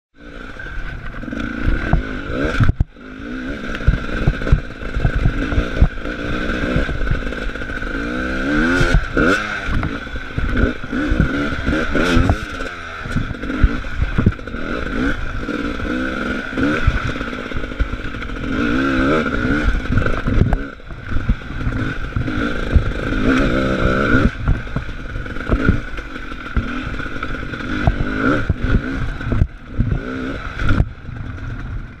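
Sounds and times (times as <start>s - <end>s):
motorcycle engine revving: 0.2s - 32.0s.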